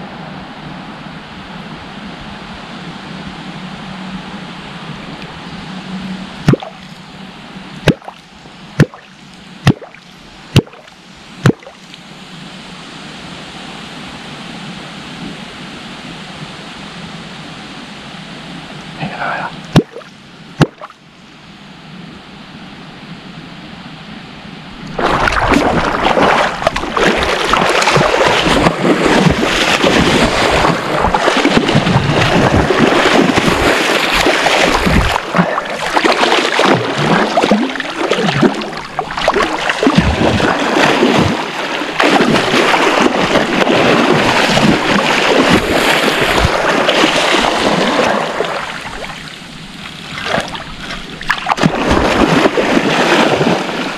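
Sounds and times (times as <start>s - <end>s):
fish thrashing and splashing: 24.9s - 53.9s.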